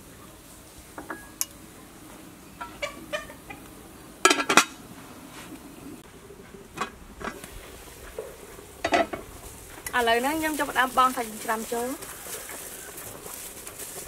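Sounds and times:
metal pot lid clattering: 0:04.2 - 0:04.8, 0:08.8 - 0:09.2.

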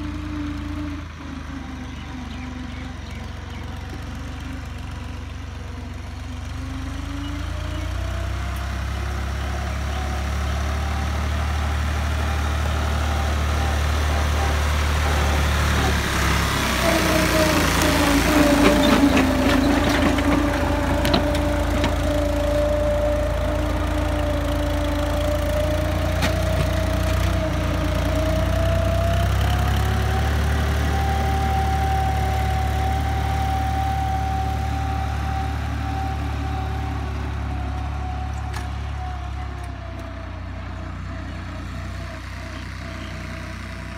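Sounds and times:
tractor diesel engine running: 0:00.0 - 0:43.9
rattling and clatter: 0:18.2 - 0:22.1.

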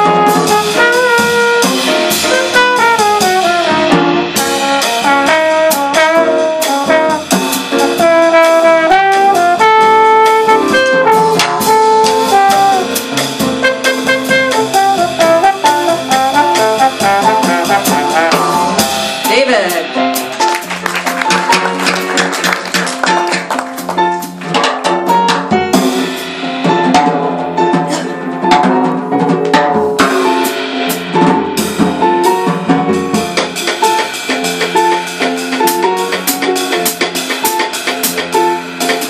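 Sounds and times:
trombone jazz solo: 0:00.0 - 0:20.5, 0:25.0 - 0:39.0.

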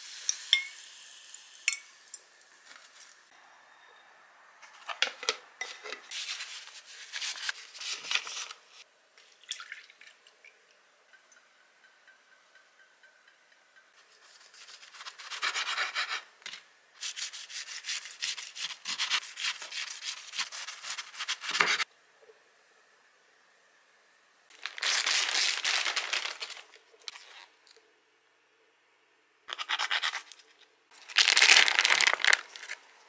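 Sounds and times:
plastic bag crinkling: 0:24.5 - 0:27.5, 0:31.0 - 0:32.9.

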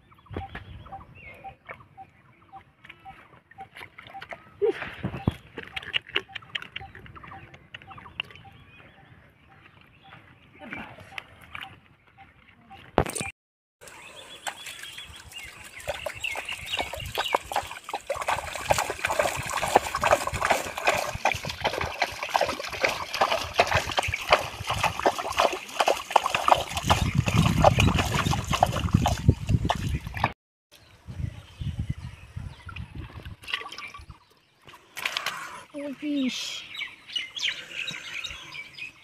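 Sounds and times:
water splashing and sloshing: 0:02.6 - 0:08.4, 0:09.7 - 0:30.4, 0:32.7 - 0:36.3.

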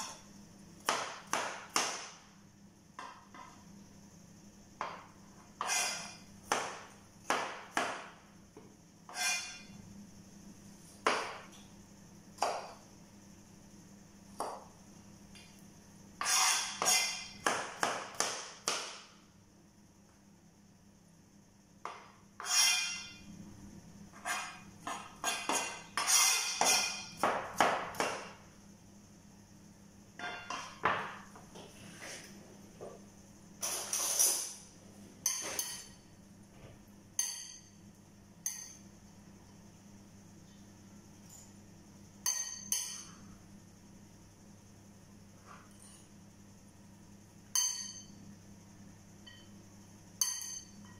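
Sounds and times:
knife chopping on plastic board: 0:00.8 - 0:02.2, 0:05.6 - 0:08.1, 0:16.2 - 0:19.1, 0:24.2 - 0:28.3
metal spoon clinking ceramic bowl: 0:35.2 - 0:36.0, 0:37.2 - 0:37.8, 0:38.4 - 0:38.9, 0:42.2 - 0:43.1, 0:47.5 - 0:48.2, 0:49.3 - 0:49.5, 0:50.2 - 0:50.9.

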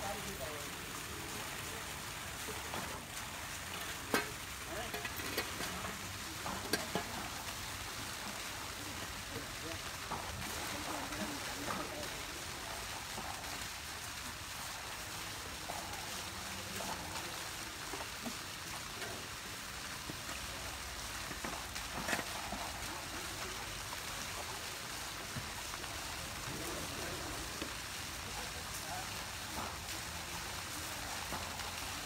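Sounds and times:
water hissing: 0:00.0 - 0:32.0.

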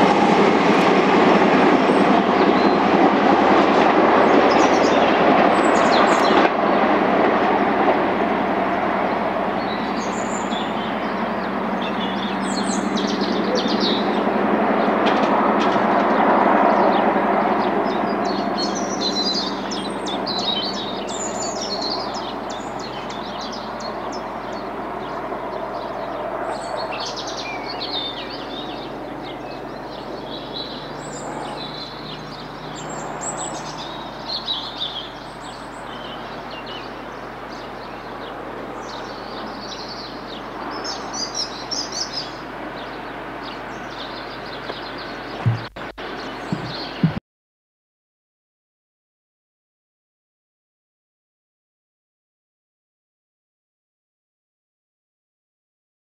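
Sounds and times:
small birds chirping: 0:09.6 - 0:14.2, 0:17.6 - 0:47.2
steady rushing noise: 0:44.8 - 0:47.2.

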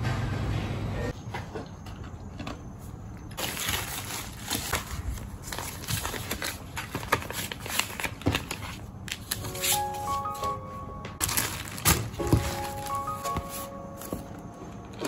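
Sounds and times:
plastic bags and paper rustling: 0:03.4 - 0:10.6, 0:11.2 - 0:15.0.

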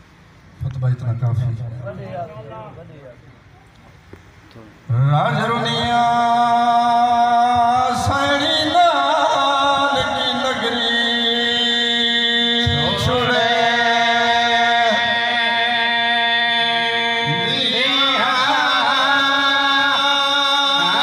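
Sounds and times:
amplified man chanting: 0:04.9 - 0:21.0.

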